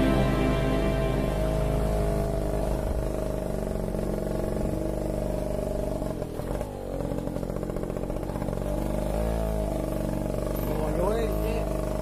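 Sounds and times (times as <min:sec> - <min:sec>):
motorcycle engine running: 0:01.6 - 0:12.0.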